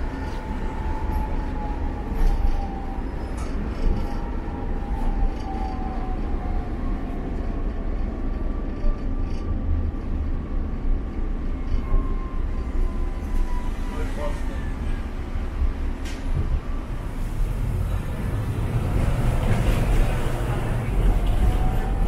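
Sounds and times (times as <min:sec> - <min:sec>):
tram rumbling on rails: 0:00.0 - 0:22.0.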